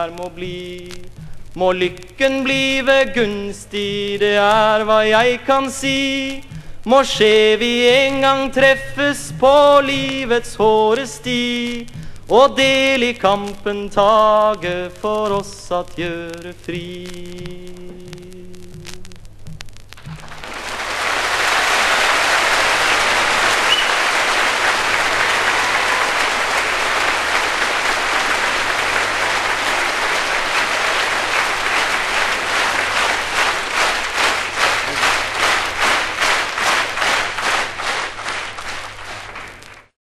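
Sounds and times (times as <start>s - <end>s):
rhythmic clapping in unison: 0.0s - 40.0s
audience applauding: 20.0s - 40.0s.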